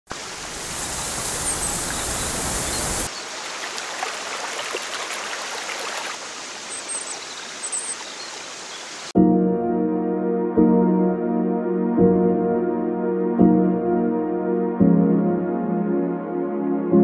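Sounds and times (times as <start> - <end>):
stream rushing over rocks: 0.1 - 9.1.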